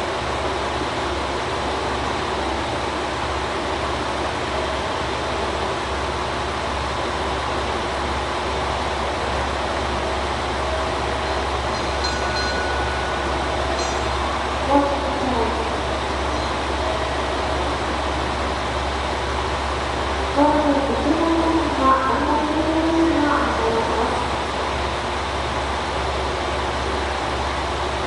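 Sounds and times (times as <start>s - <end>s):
diesel railcar engine idling: 0.0s - 28.0s
station background noise: 0.0s - 28.0s.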